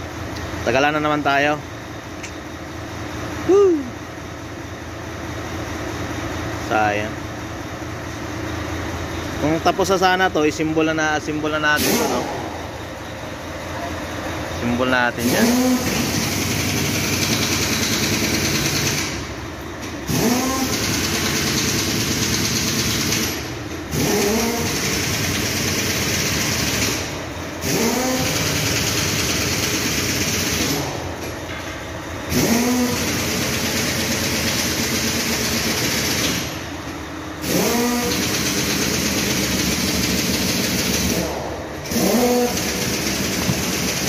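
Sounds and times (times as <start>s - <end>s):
engine revving with rising whine: 9.6s - 12.8s, 14.6s - 19.4s, 20.0s - 31.2s, 32.3s - 36.7s, 37.4s - 44.0s.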